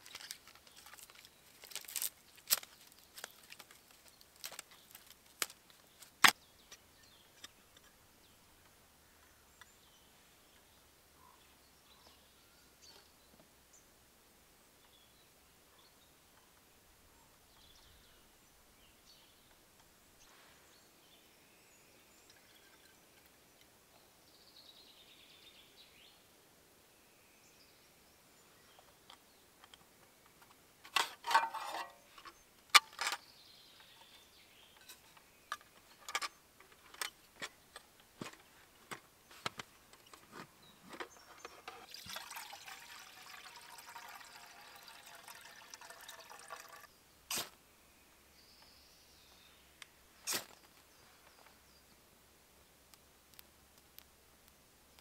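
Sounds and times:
liquid poured into metal tin: 41.6 - 46.9.

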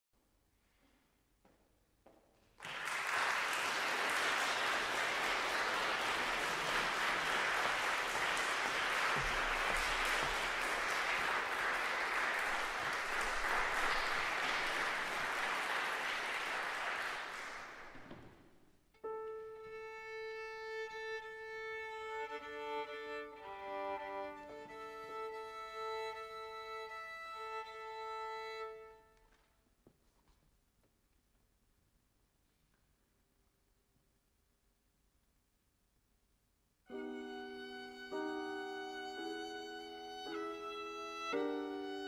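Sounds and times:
audience applauding: 2.6 - 18.2
violin and piano playing: 19.0 - 29.2, 36.9 - 42.0.

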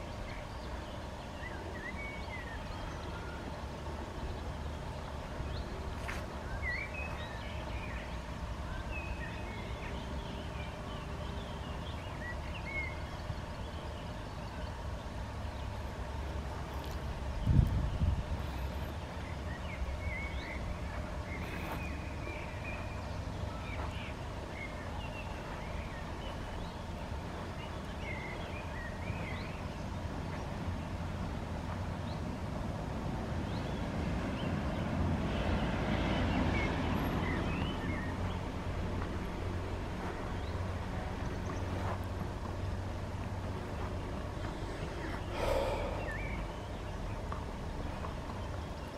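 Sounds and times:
small birds chirping: 0.0 - 38.7, 39.5 - 48.9
broad rushing noise: 14.6 - 48.6
steady low rumble: 38.4 - 48.4.

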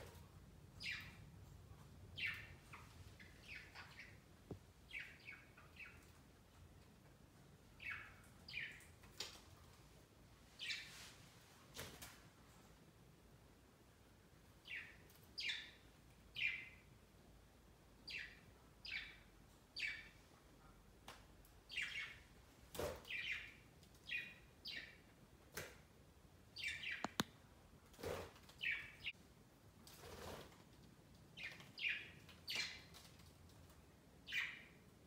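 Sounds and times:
sharp clicks: 27.0 - 27.3.

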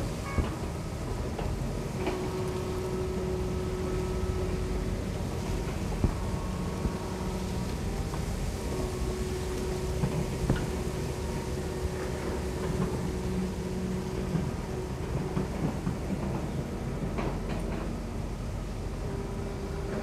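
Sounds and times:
excavator diesel engine running: 0.0 - 20.0.

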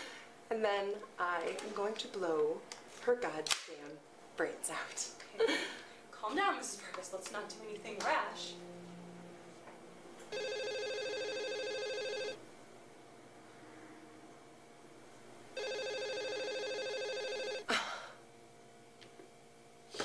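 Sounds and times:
telephone ringing: 10.3 - 12.4, 15.6 - 17.7.

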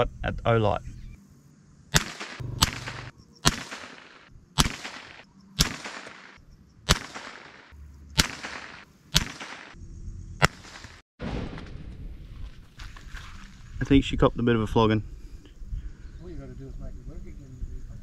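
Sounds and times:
rifle shots with echo: 1.9 - 9.8, 10.4 - 11.6.

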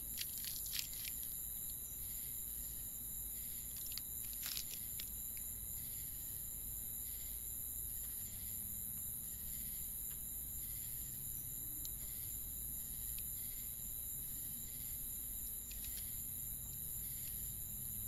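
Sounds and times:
crickets chirping: 0.0 - 18.0.

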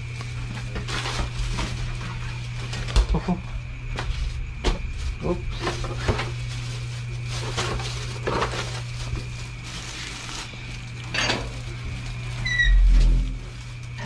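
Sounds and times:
steady low hum: 0.0 - 14.0
objects clattering and clinking: 0.2 - 14.0
short rising squeak: 12.4 - 13.2.

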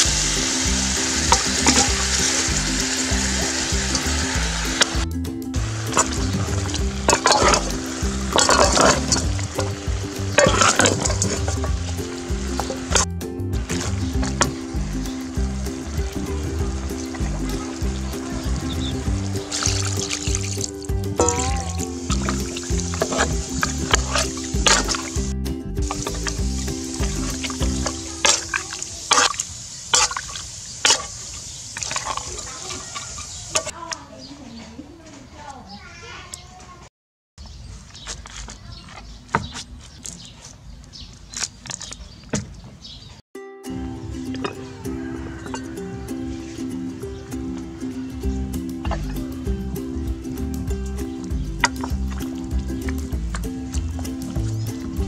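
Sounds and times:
chicken sizzling in a pot: 0.0 - 5.0, 5.6 - 33.8, 44.7 - 46.3
background music: 0.0 - 28.7, 43.4 - 55.0
metal spatula scraping a pot: 5.9 - 12.0, 22.1 - 25.2.

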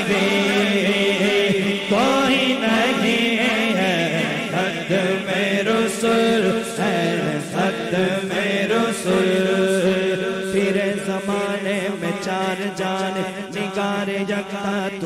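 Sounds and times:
man singing through loudspeakers: 0.0 - 15.0.

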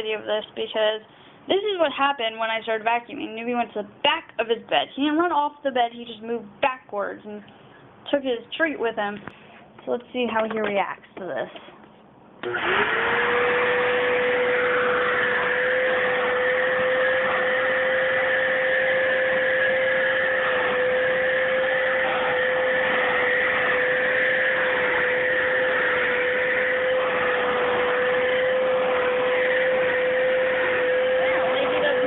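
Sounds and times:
vacuum cleaner running: 12.4 - 32.0.

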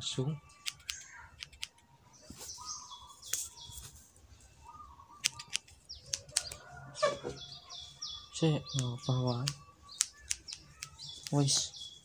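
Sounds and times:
small birds chirping: 0.0 - 12.0
scissors snipping hair: 0.6 - 1.8, 5.2 - 6.6, 8.8 - 11.6.

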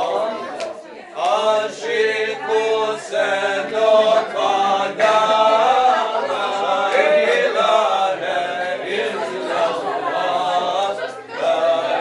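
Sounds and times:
voices singing unaccompanied: 0.0 - 12.0.

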